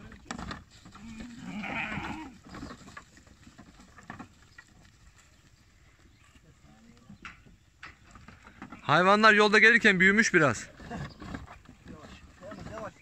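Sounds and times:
lamb bleating: 0:01.4 - 0:02.4.

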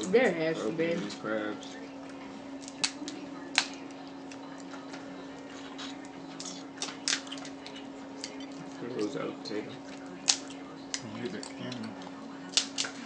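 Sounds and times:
steady low hum: 0:00.0 - 0:13.0
crab shells cracking: 0:02.6 - 0:04.4, 0:06.4 - 0:08.5, 0:10.2 - 0:13.0.

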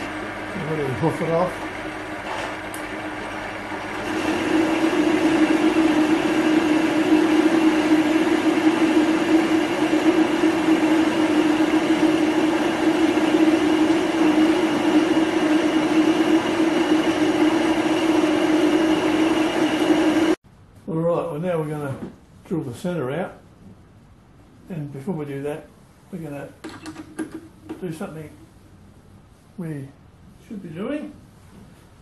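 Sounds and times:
metal lathe cutting: 0:00.0 - 0:20.4.

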